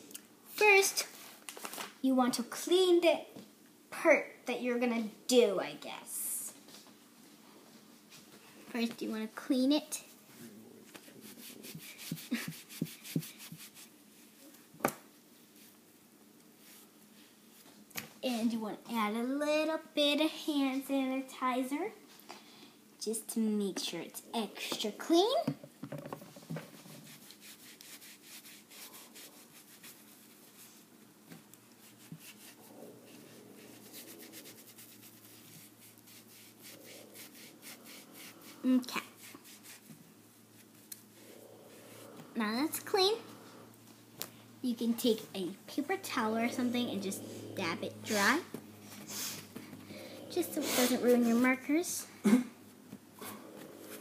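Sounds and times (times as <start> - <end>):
wipe rubbing on skin: 10.9 - 14.0, 26.7 - 30.9, 31.7 - 42.2.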